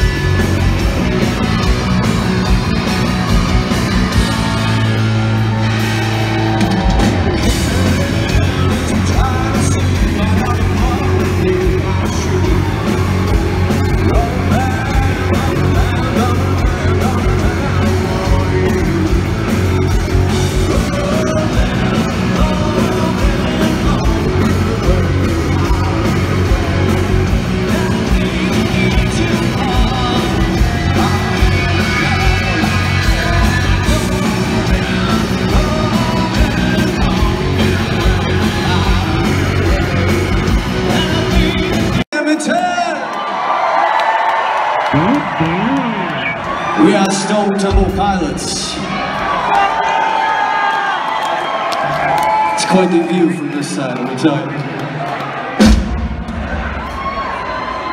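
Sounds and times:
live rock band playing: 0.0 - 42.1, 44.5 - 54.2, 55.5 - 57.9
person singing and yelling: 7.0 - 19.6, 20.2 - 43.0.

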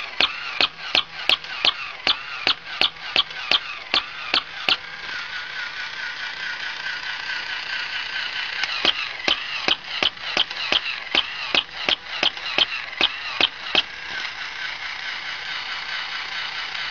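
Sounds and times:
toy motor and gears whirring: 0.0 - 16.9
wavering electronic tone: 0.2 - 4.8.

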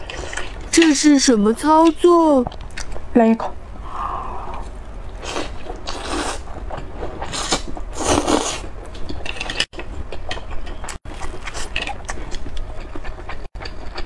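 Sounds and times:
chewing with wet mouth clicks: 2.5 - 3.0, 9.0 - 14.0
wet slurping: 4.4 - 6.5.

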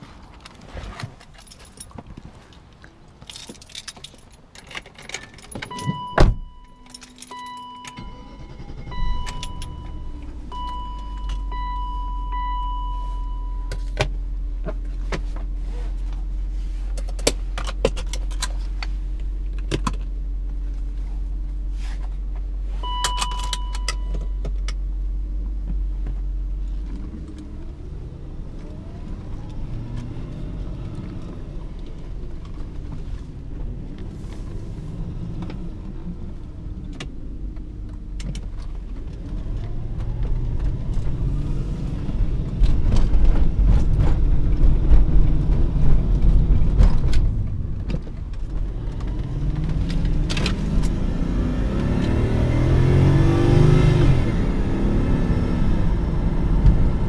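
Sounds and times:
car engine starting and idling: 0.0 - 57.0
keys jangling: 1.2 - 2.0, 3.2 - 6.0, 6.7 - 7.6
car door shutting: 5.5 - 6.6
dashboard warning chime beeping: 5.7 - 14.0, 22.8 - 24.4.

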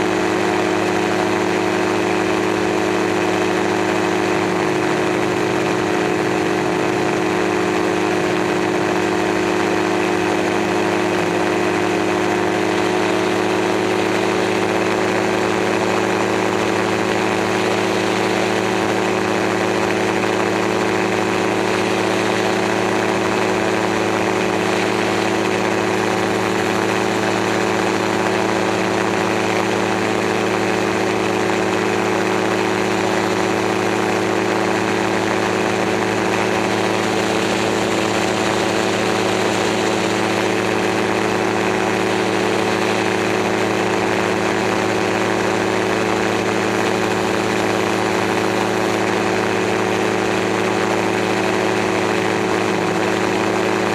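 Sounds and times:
aircraft engine and propeller: 0.0 - 53.9.

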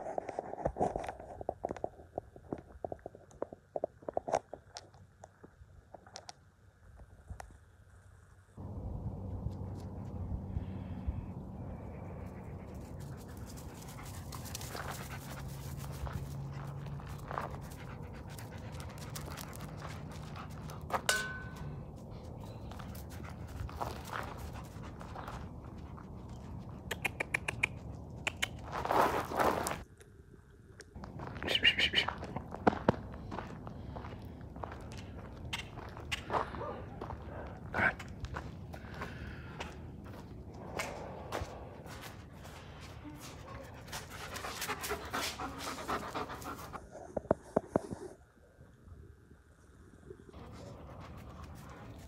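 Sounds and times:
dog panting: 12.1 - 21.0, 22.3 - 27.9, 41.9 - 46.9, 50.4 - 52.0
footsteps on gravel: 13.6 - 21.7, 22.5 - 26.1, 28.7 - 29.8, 31.0 - 44.6.

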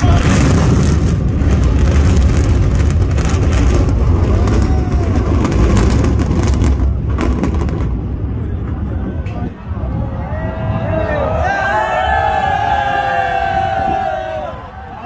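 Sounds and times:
sharp crackles: 0.0 - 8.2
buildings collapsing rumble: 0.0 - 15.0.

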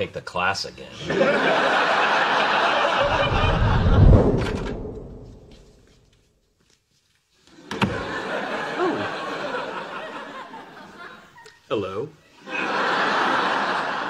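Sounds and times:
studio audience laughing: 1.0 - 4.3, 7.6 - 11.6, 12.4 - 14.0
door shutting with a click: 7.7 - 8.0.

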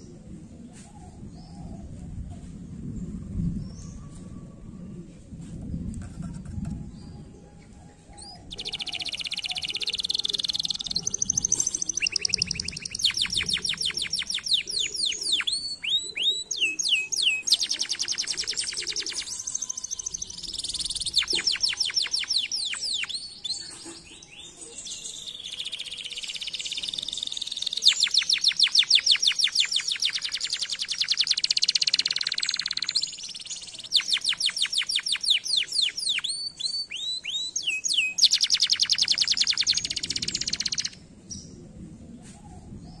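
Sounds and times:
canary singing trills: 8.1 - 41.5.

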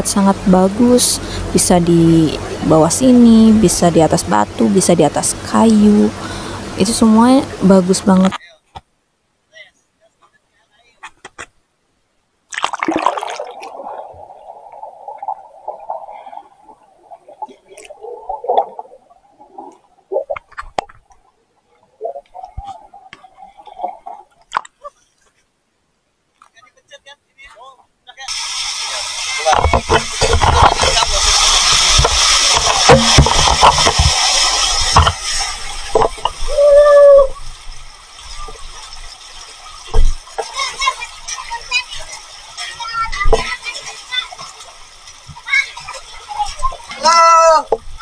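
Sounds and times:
gurgling rushing water: 0.0 - 8.3, 12.5 - 24.6, 28.3 - 48.0
sudden splash: 12.5 - 14.6
waterfall rushing: 28.3 - 37.4.

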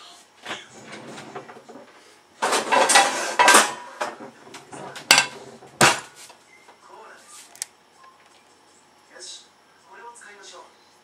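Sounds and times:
pots and pans clattering: 0.5 - 6.2
frying pan clanking on grate: 5.0 - 6.1.

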